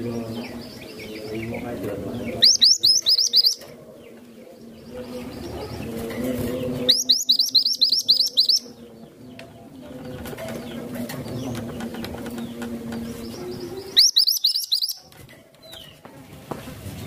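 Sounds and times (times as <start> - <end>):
bird singing high rising chirps: 2.2 - 5.7, 6.8 - 9.3, 12.4 - 15.1.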